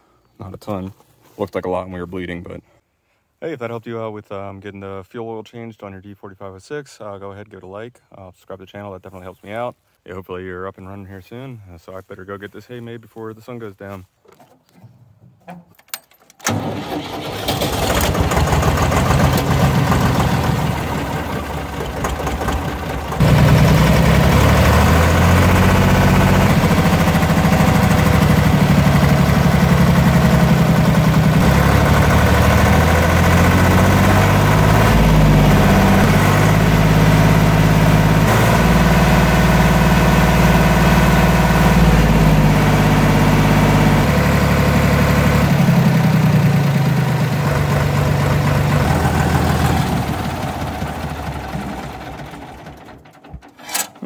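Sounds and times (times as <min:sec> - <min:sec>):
diesel tractor engine cranking and running: 0:14.4 - 0:54.0.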